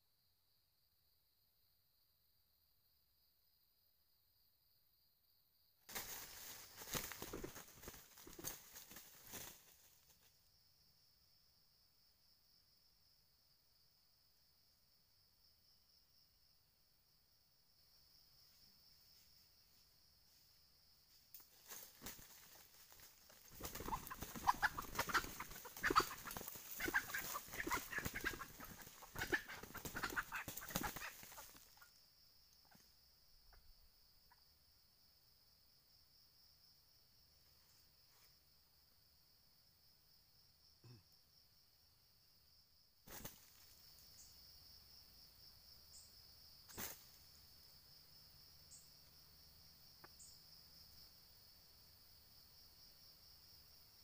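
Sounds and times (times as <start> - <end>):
leaves rustling and crunching: 5.9 - 10.2, 21.5 - 29.0
wings flapping in dry leaves: 5.9 - 10.3, 21.4 - 31.9, 43.1 - 43.8, 46.7 - 47.2
rooster squawking: 23.7 - 31.5.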